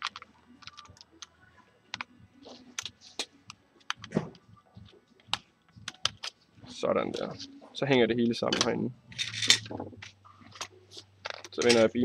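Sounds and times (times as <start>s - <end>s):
plastic parts clicking and knocking: 0.0s - 1.3s, 8.5s - 11.9s.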